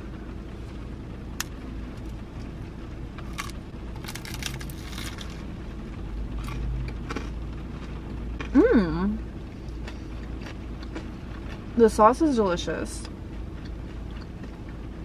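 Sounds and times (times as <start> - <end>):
low steady rumble: 0.0 - 15.0
crunching and chewing food: 1.3 - 5.6, 6.3 - 8.7, 9.4 - 12.0, 13.0 - 15.0.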